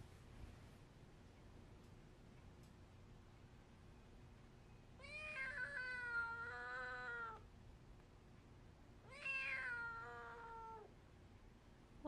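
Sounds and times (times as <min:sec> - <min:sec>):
kitten meowing: 0:09.1 - 0:10.9.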